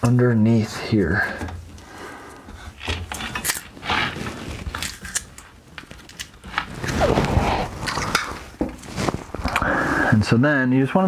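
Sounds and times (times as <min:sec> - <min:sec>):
cable handling rustles and clicks: 0:01.1 - 0:09.7.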